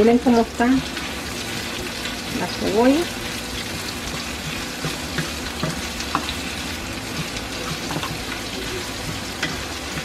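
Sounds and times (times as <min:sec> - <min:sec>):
onions sizzling in frying pan: 0:00.0 - 0:10.0.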